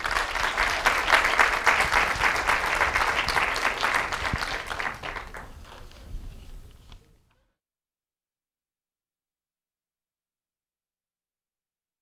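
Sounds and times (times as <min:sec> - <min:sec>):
audience applauding: 0:00.0 - 0:05.9.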